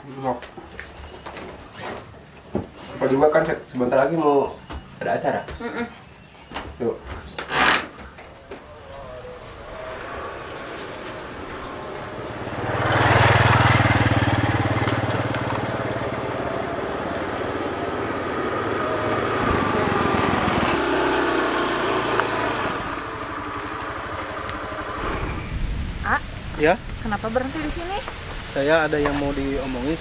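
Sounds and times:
motor scooter engine running: 0:09.4 - 0:25.1.

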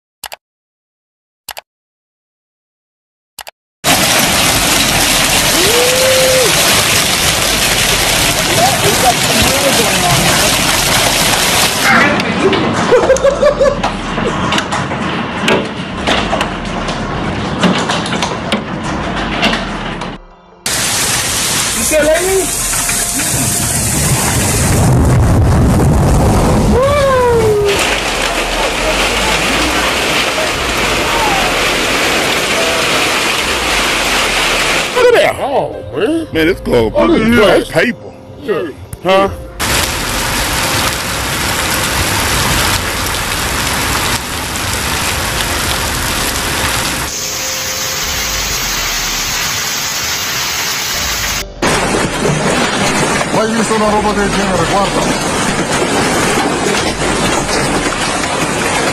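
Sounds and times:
hailstones knocking hard surfaces: 0:03.8 - 0:15.1, 0:20.7 - 0:35.0, 0:39.6 - 0:47.1, 0:51.6 - 0:58.9
hail pelting down: 0:03.8 - 0:19.9, 0:20.7 - 0:35.3, 0:39.6 - 0:58.9
heavy rain on pavement: 0:03.8 - 0:35.2, 0:39.6 - 0:58.9.

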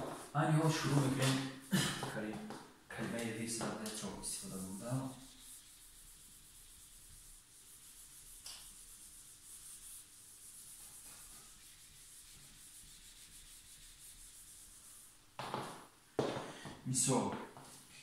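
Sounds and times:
eraser rubbing on whiteboard: 0:03.1 - 0:15.8.

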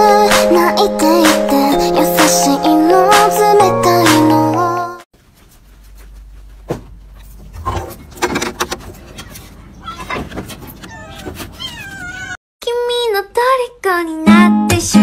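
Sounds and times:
knocks and rustles: 0:05.2 - 0:12.0
cats meowing: 0:10.8 - 0:12.4.

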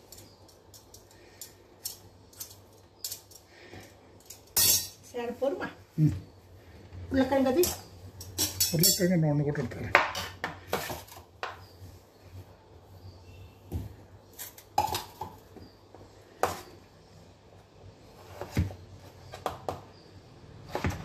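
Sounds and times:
kitchen utensils knocking and clinking: 0:04.2 - 0:05.0, 0:07.2 - 0:09.2.

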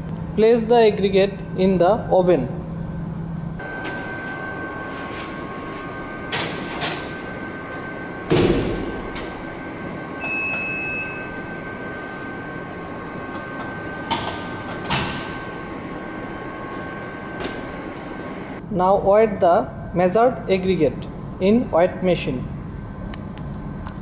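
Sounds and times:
steady hum: 0:00.0 - 0:24.0
electronic beep: 0:03.5 - 0:19.0.

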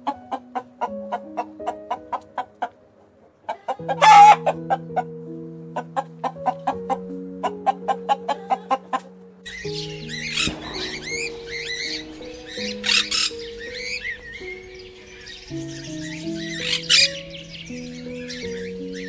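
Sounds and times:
hen squawk: 0:03.5 - 0:04.5
macaws squawking: 0:03.5 - 0:04.9
hens clucking: 0:03.5 - 0:05.0.

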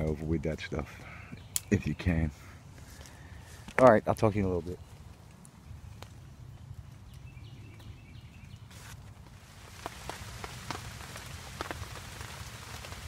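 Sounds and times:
rain falling: 0:04.9 - 0:13.0
heavy raindrops striking close by: 0:05.9 - 0:13.0.

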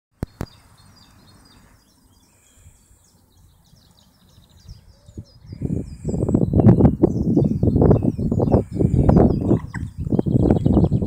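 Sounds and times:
small songbirds singing: 0:00.2 - 0:11.0
wind buffeting microphone: 0:03.4 - 0:11.0.

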